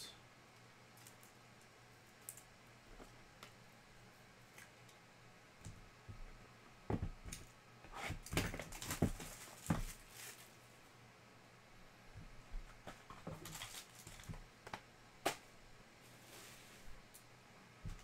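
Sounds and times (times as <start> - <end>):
cardboard box knocks and scrapes: 8.0 - 10.0.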